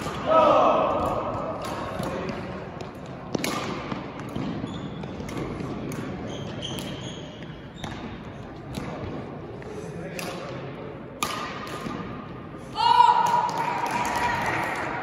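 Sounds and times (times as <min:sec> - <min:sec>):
racket striking shuttlecock: 0:03.3 - 0:07.0, 0:10.1 - 0:10.6, 0:11.2 - 0:12.2
shoe squeaks on court floor: 0:04.6 - 0:05.3, 0:06.2 - 0:08.2.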